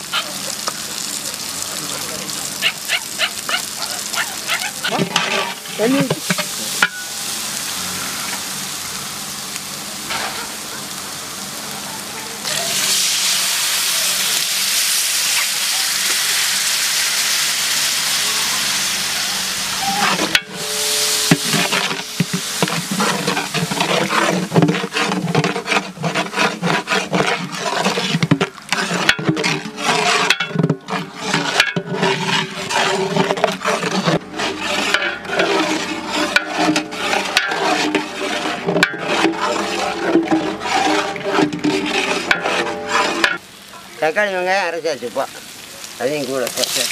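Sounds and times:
spices sizzling in oil: 0.0s - 46.9s
steel spatula scraping a pot: 3.5s - 7.2s, 19.7s - 43.4s.

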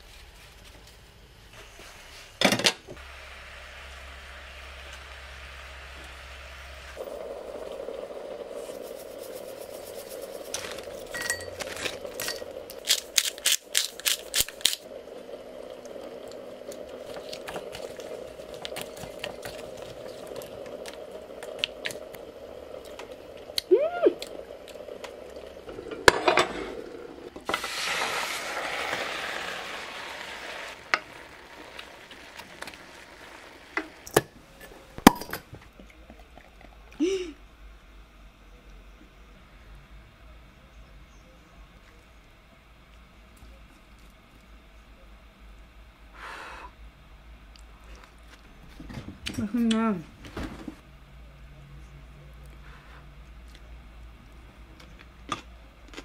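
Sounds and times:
steady hum: 0.0s - 28.7s
chili flakes poured in: 27.5s - 33.6s
bottle cap popping off: 35.0s - 35.4s.

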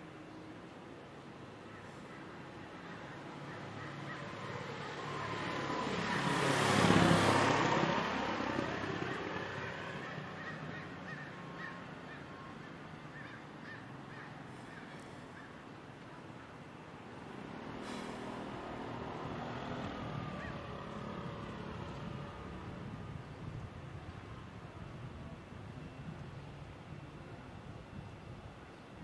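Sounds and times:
vehicle driving past: 3.0s - 11.7s, 17.0s - 24.5s.

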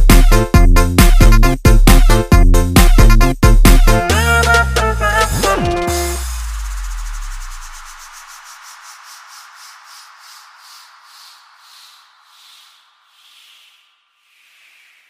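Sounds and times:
synthesized white-noise sweep: 5.3s - 15.0s.

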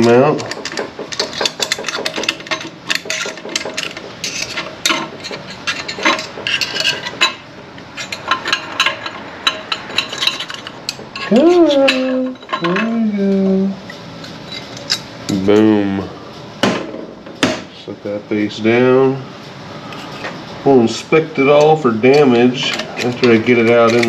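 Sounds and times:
metal plates clinking and scraping: 0.0s - 13.0s, 14.2s - 15.1s, 21.4s - 24.0s.

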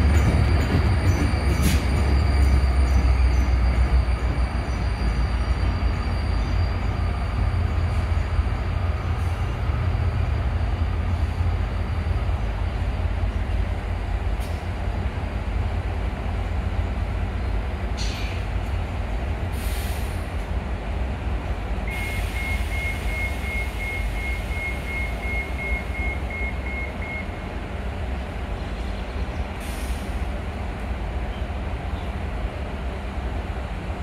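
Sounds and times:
train rumble: 0.0s - 34.0s.

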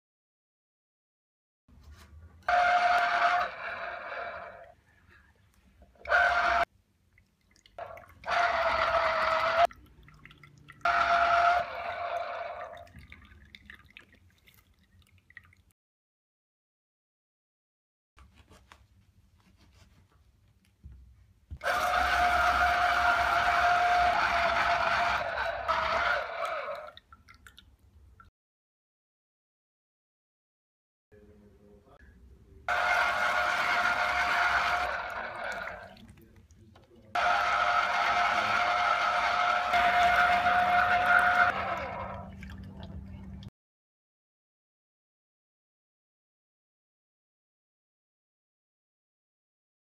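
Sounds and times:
juicer motor whirring: 21.6s - 26.6s, 32.7s - 35.9s, 37.2s - 42.4s.

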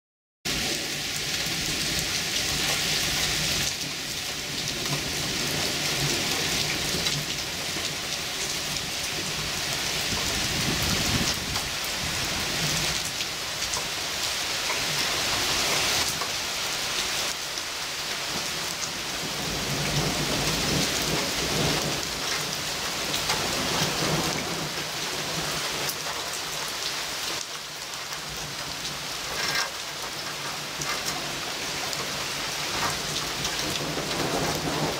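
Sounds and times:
heavy rain pouring: 0.5s - 34.9s
thunder rumbling: 32.7s - 34.9s.

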